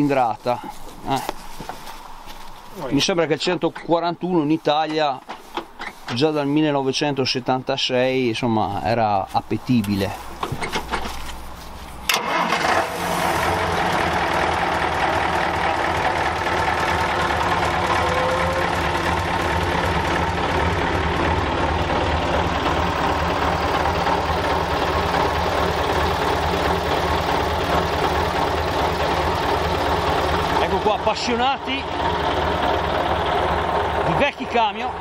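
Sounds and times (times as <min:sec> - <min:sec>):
diesel engine idling: 0:09.3 - 0:35.0
engine starter cranking: 0:12.1 - 0:34.4.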